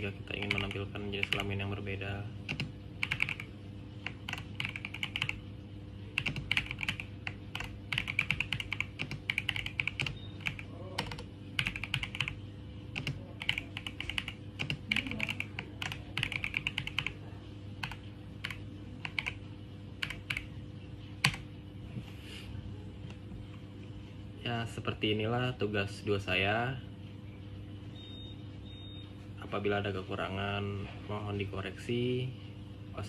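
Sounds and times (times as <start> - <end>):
typing on keyboard: 0.3 - 1.6, 2.5 - 5.4, 6.1 - 17.2, 17.8 - 19.4, 20.0 - 20.5.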